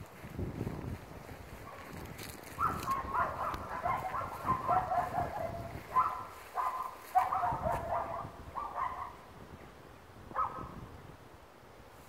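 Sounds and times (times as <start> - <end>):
dog yelping: 2.6 - 9.2.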